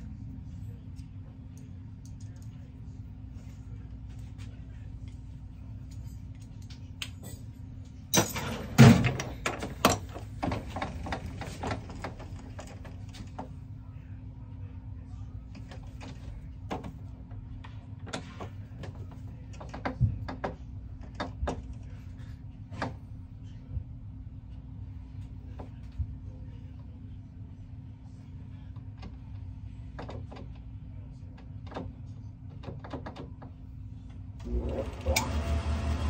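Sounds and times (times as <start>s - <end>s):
lathe humming: 34.4s - 36.0s.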